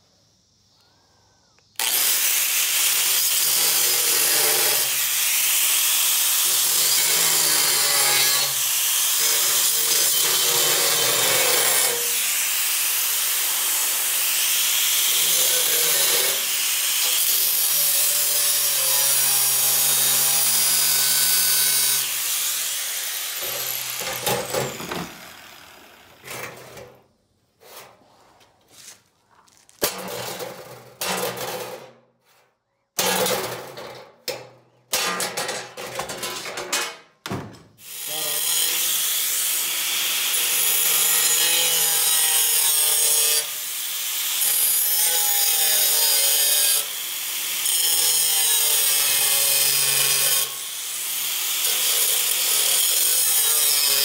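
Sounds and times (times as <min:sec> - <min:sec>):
angle grinder cutting steel: 0:01.8 - 0:27.0, 0:37.8 - 0:54.0.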